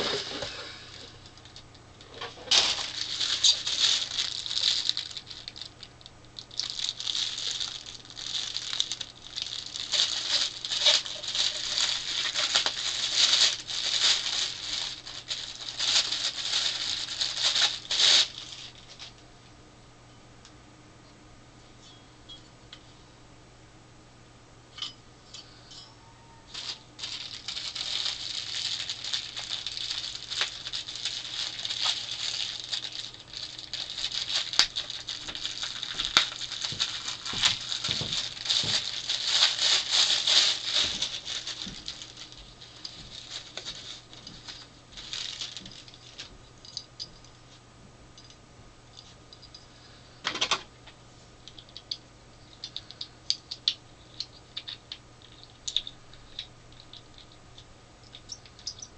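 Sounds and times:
plastic bag crinkling: 0.0s - 19.2s, 26.5s - 47.1s, 53.6s - 57.4s.

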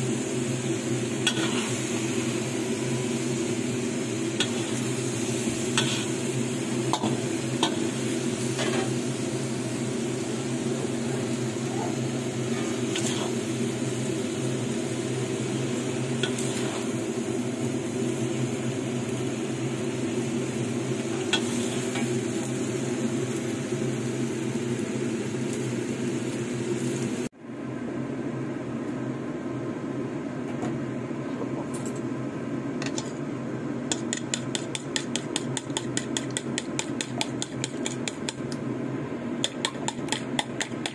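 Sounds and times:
food sizzling in a wok: 0.0s - 27.4s, 33.2s - 40.9s
utensil scraping a wok: 1.2s - 2.0s, 4.3s - 9.0s, 12.4s - 13.5s, 16.2s - 17.0s, 21.1s - 22.2s
fork beating eggs in a bowl: 33.9s - 38.4s, 39.4s - 40.9s.

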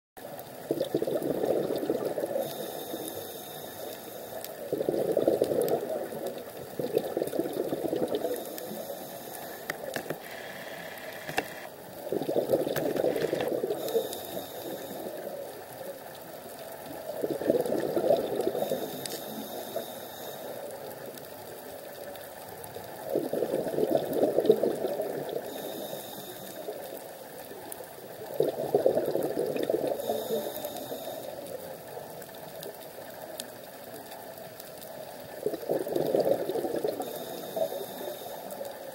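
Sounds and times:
exhaled bubbles gurgling: 0.2s - 38.9s
regulator hiss on inhale: 1.7s - 6.4s, 8.0s - 11.7s, 12.7s - 16.0s, 18.0s - 21.4s, 24.4s - 27.6s, 29.6s - 33.1s, 36.0s - 38.9s.

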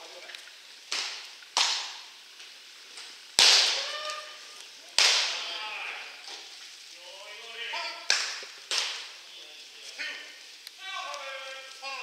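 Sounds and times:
baseballs smacking into mitts: 0.9s - 2.0s, 3.4s - 4.0s, 5.0s - 5.4s, 8.1s - 9.1s.

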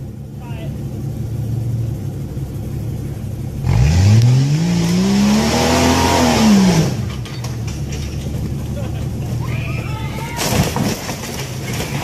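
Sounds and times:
engine revving hard: 3.6s - 7.1s.

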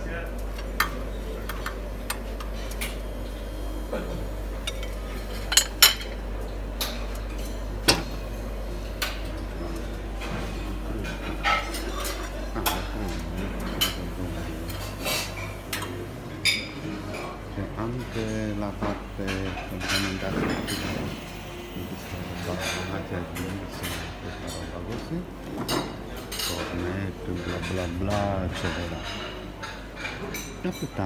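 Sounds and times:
steady low hum: 0.0s - 31.0s
metal utensils clinking on dishes: 4.6s - 17.4s, 18.0s - 21.2s, 22.0s - 31.0s.

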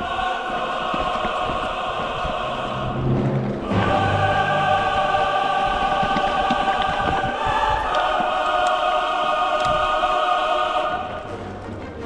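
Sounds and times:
choir singing sustained chords: 0.0s - 12.0s.

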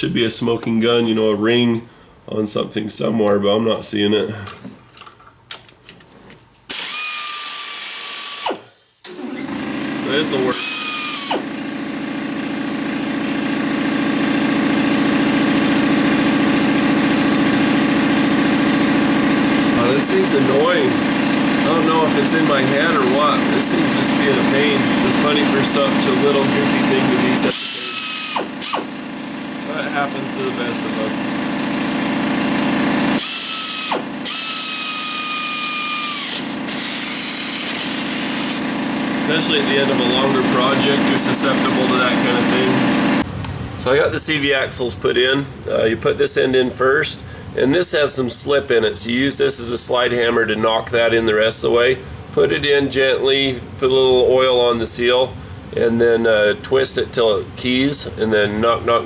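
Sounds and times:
cordless power tool motor whine: 6.7s - 43.3s
engine running: 6.7s - 43.9s.

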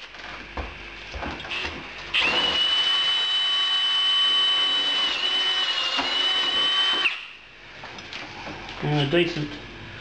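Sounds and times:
drill with hole saw whining: 1.4s - 7.4s.

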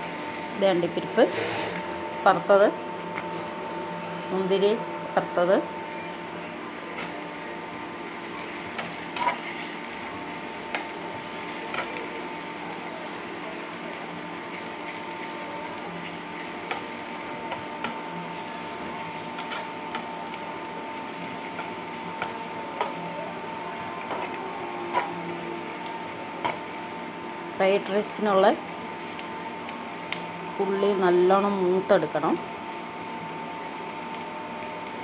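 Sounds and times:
onions frying in a pan: 0.0s - 35.0s
steady hum: 0.0s - 35.0s
spoon scraping a pan: 8.7s - 9.8s, 24.0s - 25.2s.

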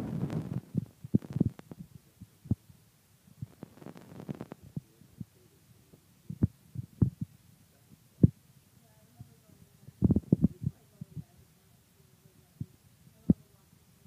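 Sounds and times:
soft low thumps and clicks: 0.2s - 2.8s, 6.3s - 7.3s.

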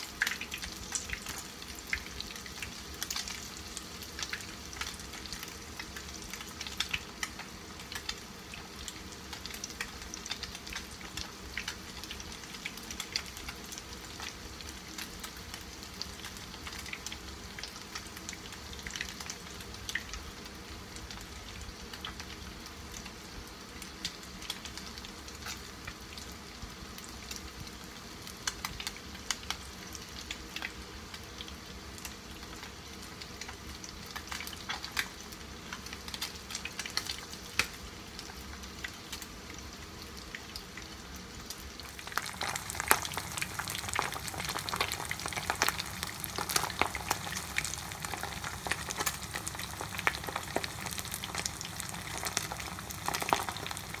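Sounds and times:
oil popping and crackling: 0.0s - 20.2s, 32.0s - 54.0s
fish frying in oil: 0.0s - 54.0s.

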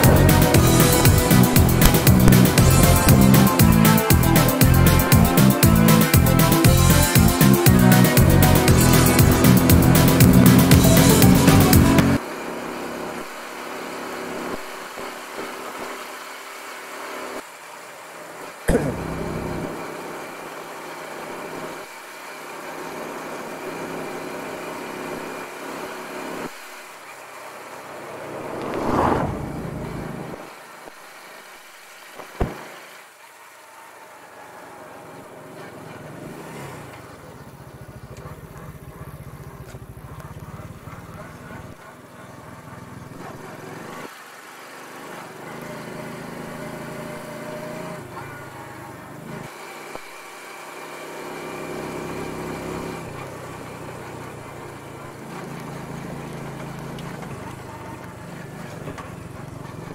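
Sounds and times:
motorcycle engine running: 0.0s - 30.8s, 35.0s - 59.9s
sharp knock: 18.7s - 19.1s.

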